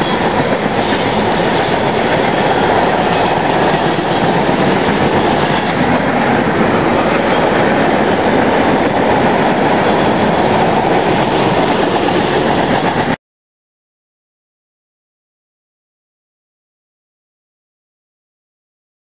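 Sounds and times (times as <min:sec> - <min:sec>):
train wheels rumbling on rails: 0:00.0 - 0:13.2.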